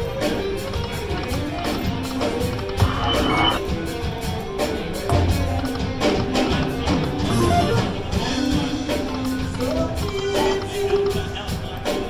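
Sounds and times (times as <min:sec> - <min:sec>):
slot machine electronic music: 0:02.6 - 0:03.8, 0:07.0 - 0:09.0.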